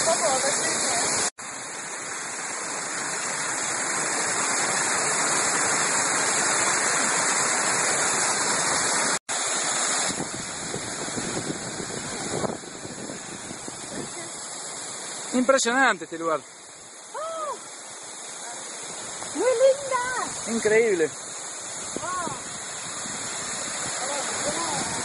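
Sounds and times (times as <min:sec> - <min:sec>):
waterfall rushing: 0:00.0 - 0:25.0.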